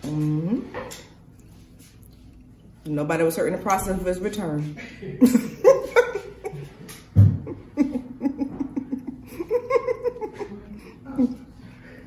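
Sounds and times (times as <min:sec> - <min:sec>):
person chuckling: 0:07.4 - 0:11.5.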